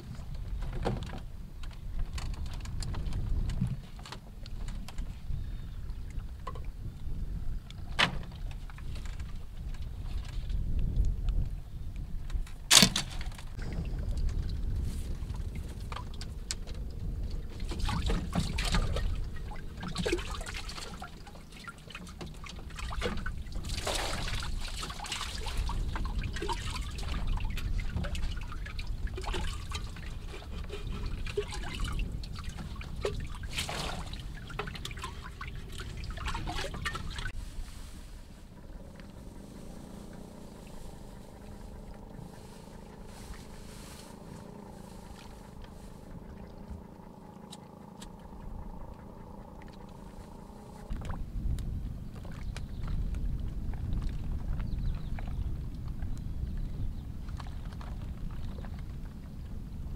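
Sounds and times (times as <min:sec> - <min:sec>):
water splashing on bamboo floor: 0:17.7 - 0:37.4.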